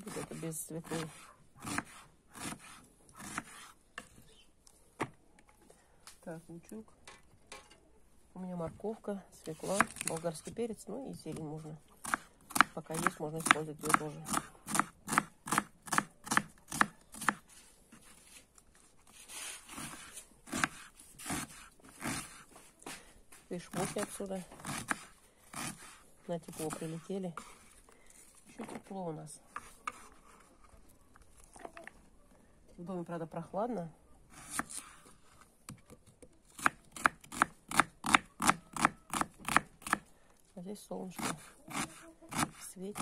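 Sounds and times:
knife cutting onion on board: 0:00.0 - 0:04.1, 0:11.4 - 0:17.4, 0:19.4 - 0:23.0, 0:23.7 - 0:27.6, 0:36.5 - 0:40.0, 0:41.2 - 0:43.0
soft rustle: 0:17.4 - 0:20.3.

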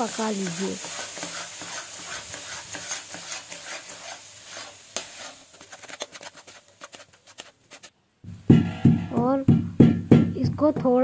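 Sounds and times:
metal spatula scraping pan: 0:00.0 - 0:07.9.

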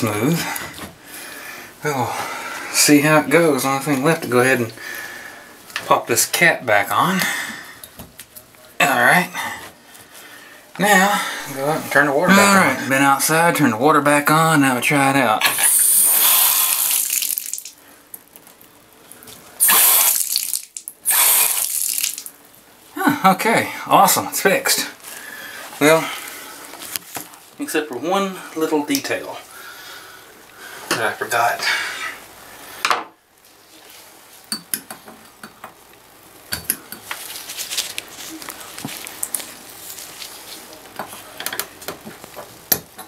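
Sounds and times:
water rushing from bathtub faucet: 0:15.6 - 0:17.8, 0:19.6 - 0:22.3.

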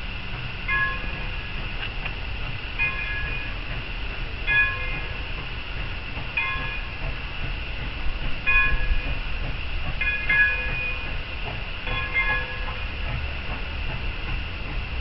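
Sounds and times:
bell ringing slowly: 0:00.7 - 0:01.3, 0:02.8 - 0:03.6, 0:04.5 - 0:05.1, 0:06.4 - 0:06.9, 0:08.5 - 0:09.1, 0:10.0 - 0:11.1, 0:11.8 - 0:12.8.

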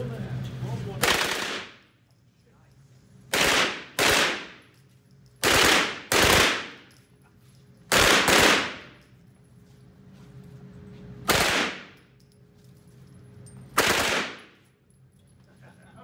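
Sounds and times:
submachine gun bursts echoing: 0:05.4 - 0:06.8, 0:07.9 - 0:08.9, 0:13.8 - 0:14.6.

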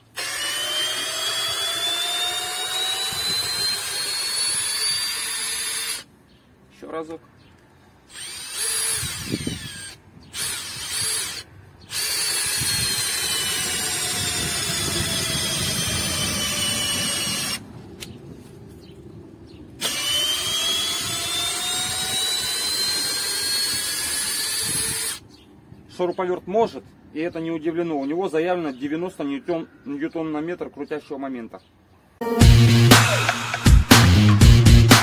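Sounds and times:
cordless drill motor whining: 0:00.0 - 0:06.1, 0:08.1 - 0:17.6, 0:19.8 - 0:25.2.

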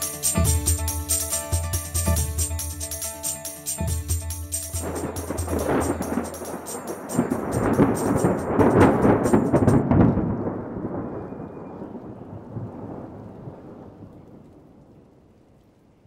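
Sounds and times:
fast high rattle: 0:00.0 - 0:09.9
rain: 0:00.0 - 0:16.0
rolling thunder: 0:04.8 - 0:16.0.

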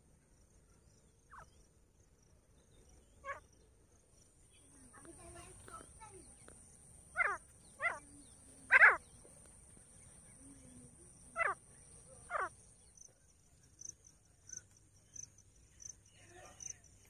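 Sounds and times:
insects trilling: 0:00.3 - 0:17.0.

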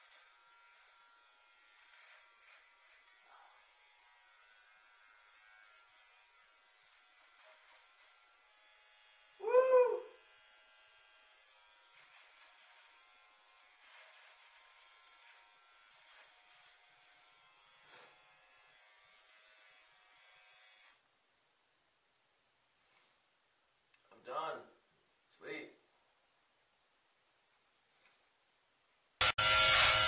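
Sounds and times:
electric trimmer buzzing: 0:00.0 - 0:09.4, 0:10.2 - 0:21.0, 0:29.2 - 0:30.0
short loud cry: 0:09.4 - 0:10.2.

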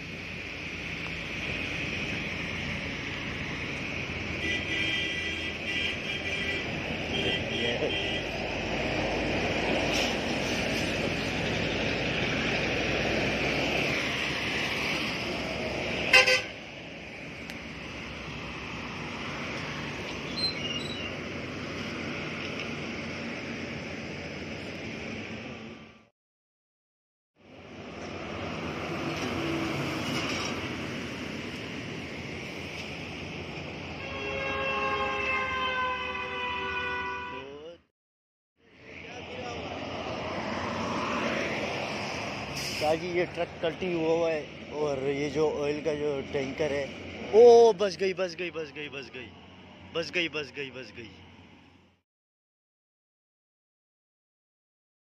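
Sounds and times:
heavy traffic on wet road: 0:00.0 - 0:26.1, 0:27.4 - 0:37.8, 0:38.6 - 0:52.0
loud horn blast: 0:04.4 - 0:08.4, 0:16.0 - 0:16.6, 0:34.0 - 0:37.6.

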